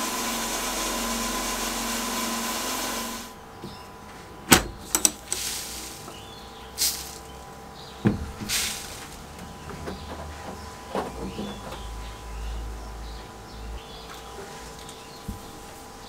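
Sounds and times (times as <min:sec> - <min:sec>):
sandblast gun hissing: 0:00.0 - 0:03.4, 0:05.1 - 0:07.3, 0:08.3 - 0:09.2
metal door latch clicking: 0:04.5 - 0:05.2.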